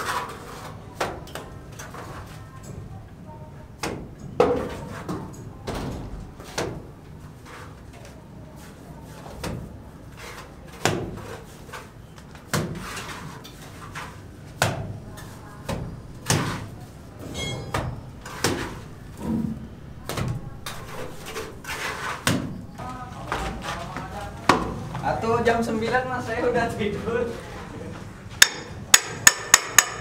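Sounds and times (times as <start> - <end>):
knocks and scrapes of building work: 0.0 - 3.0, 3.8 - 25.0
high ringing note: 17.3 - 18.1.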